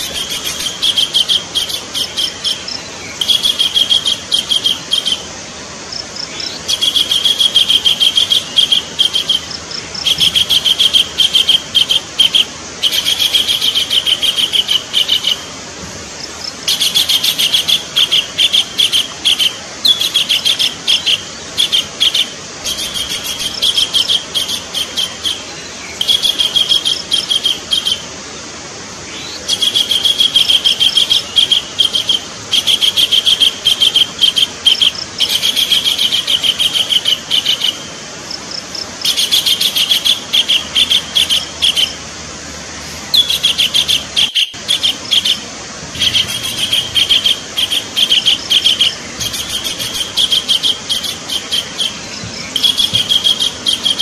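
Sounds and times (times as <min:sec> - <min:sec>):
kingfisher chattering calls: 0:06.4 - 0:15.5, 0:16.4 - 0:28.0, 0:29.2 - 0:37.9, 0:38.7 - 0:42.0, 0:43.0 - 0:54.0.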